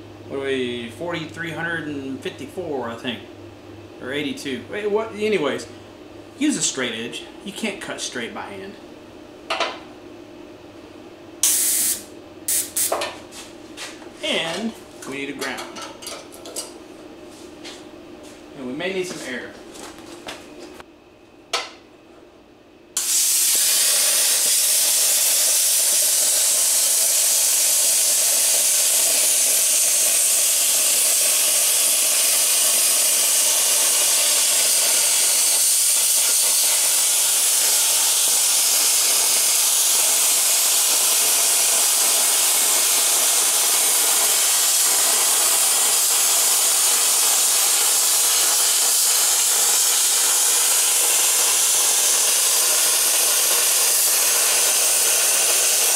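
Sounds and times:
plasma arc hissing: 11.4 - 13.0, 23.0 - 55.9
plasma cutter click: 11.4 - 13.0.

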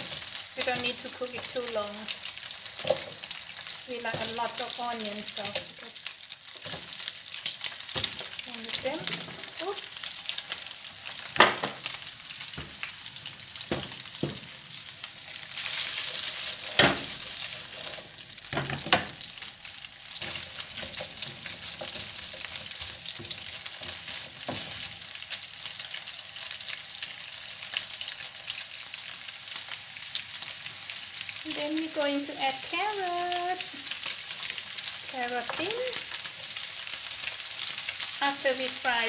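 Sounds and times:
food sizzling in hot oil: 0.0 - 39.0
spatula knocking and scraping pan: 13.6 - 14.5, 20.2 - 24.9.

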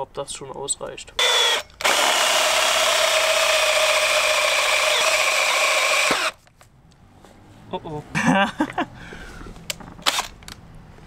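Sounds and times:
cordless drill boring into wood: 1.2 - 6.4.

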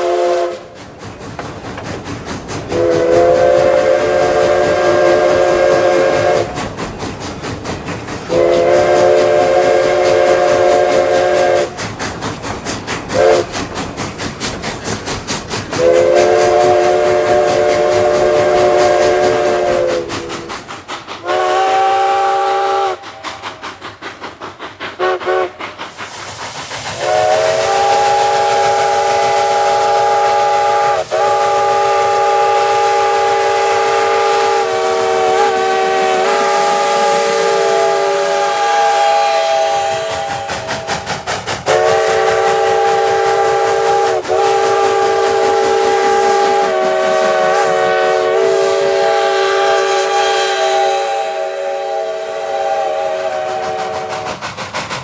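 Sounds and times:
steam whistle blasts: 0.0 - 0.8, 2.7 - 6.7, 8.2 - 11.8, 13.1 - 13.6, 15.8 - 20.5, 21.2 - 23.4, 25.0 - 25.6, 27.0 - 54.4
steam locomotive exhaust chuffing: 0.0 - 55.0.

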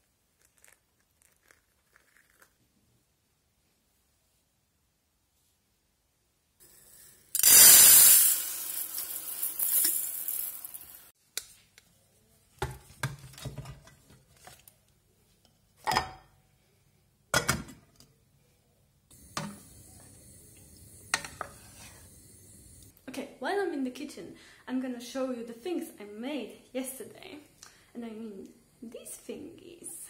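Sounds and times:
faint steady hiss: 0.0 - 17.3, 18.0 - 30.0
pots and utensils clinking: 19.3 - 22.1
wooden spoon in steel pot: 21.0 - 22.1.

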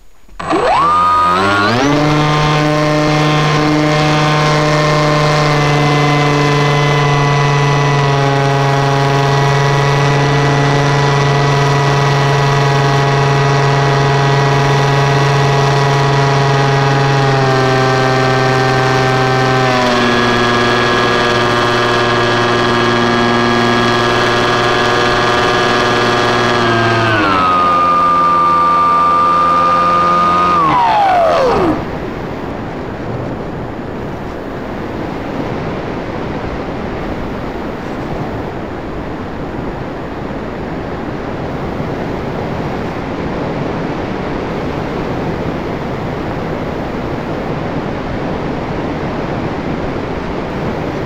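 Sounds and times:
model airplane motor droning: 0.0 - 35.3.

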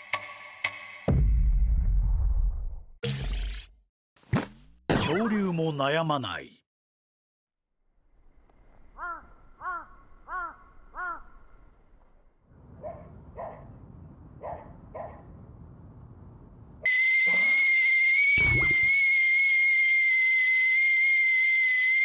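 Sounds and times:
kettle whistling: 16.9 - 22.0
animal calls: 17.0 - 18.9.

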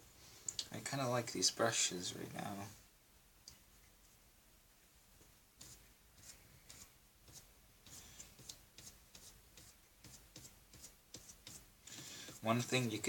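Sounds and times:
paintbrush scratching on paper: 5.6 - 13.0.

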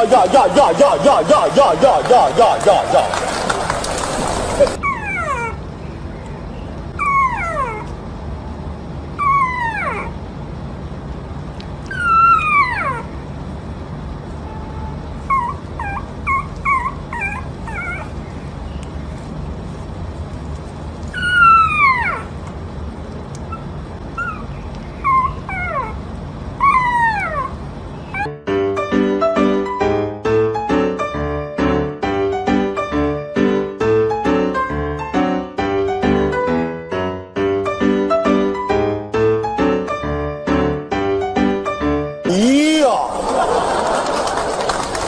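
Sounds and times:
puppy whining: 4.0 - 8.5, 9.1 - 10.3, 11.8 - 13.3, 14.4 - 19.3, 21.0 - 22.4, 23.4 - 28.4
puppy yipping: 4.5 - 5.6, 6.2 - 8.0, 9.2 - 10.2, 11.9 - 13.2, 14.6 - 19.3, 21.1 - 22.4, 23.4 - 26.0, 26.6 - 28.4.

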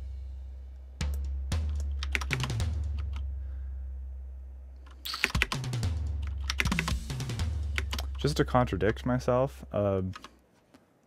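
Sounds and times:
low steady hum: 0.0 - 2.1, 3.0 - 5.1, 7.8 - 10.3.

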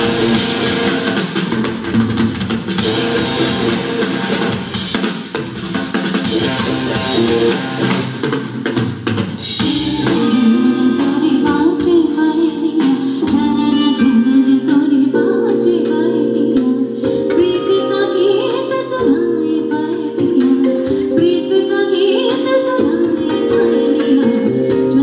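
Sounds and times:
funk rock band playing: 0.0 - 25.0
person singing: 9.6 - 25.0.

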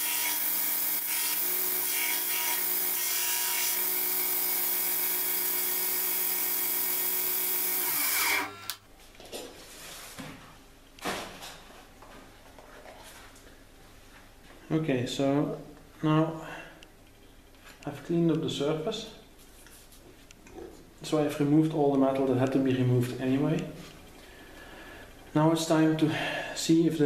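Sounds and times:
belt grinder grinding steel: 0.0 - 8.8
motor winding down whine: 3.8 - 8.8.

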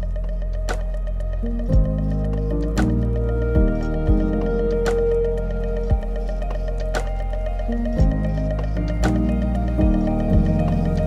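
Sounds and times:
sustained synth chords: 0.0 - 11.0
low bass thump: 1.7 - 2.2, 2.8 - 5.0, 5.9 - 6.2, 8.0 - 8.3, 9.0 - 10.6.

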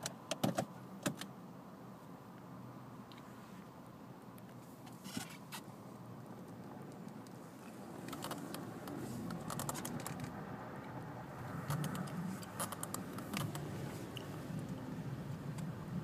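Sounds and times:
car engine humming at low revs: 0.1 - 16.0
sharp clicks and crackles: 8.0 - 14.7.

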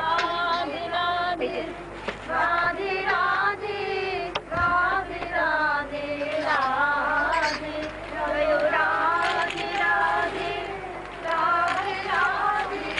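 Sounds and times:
high voice devotional singing: 0.0 - 12.9.

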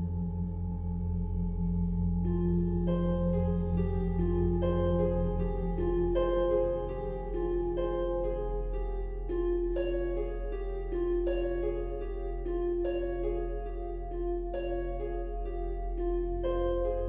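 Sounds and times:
low steady drone: 0.0 - 17.0
plucked harp-like melody: 2.2 - 17.0.

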